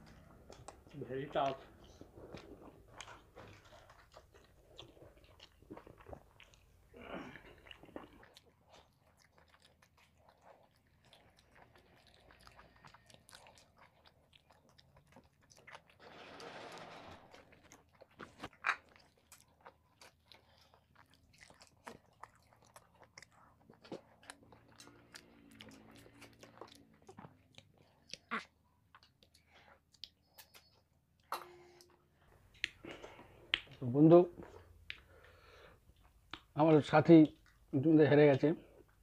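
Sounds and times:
people chewing: 0.0 - 36.6.

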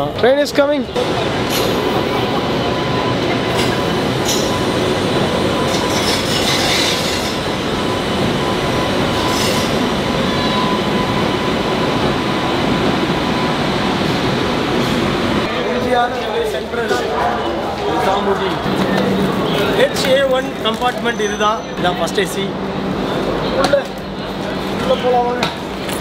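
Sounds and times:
thin steady whine: 1.0 - 19.9
train wheels rumbling on rails: 1.0 - 26.0
wheel and brake screeches: 5.6 - 7.5, 9.1 - 10.8, 20.6 - 21.8.

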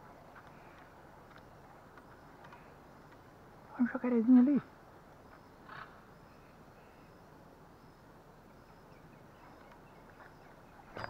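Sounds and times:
faint rustle: 0.0 - 8.1
faint high chirp: 5.2 - 11.0.

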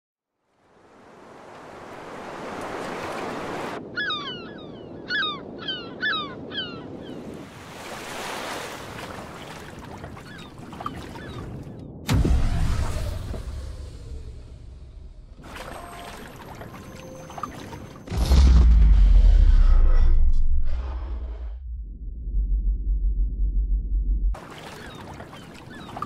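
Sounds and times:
sea waves washing: 0.6 - 3.9, 7.0 - 14.6, 15.3 - 18.1, 24.4 - 26.0
loud low rumble: 18.1 - 24.4.

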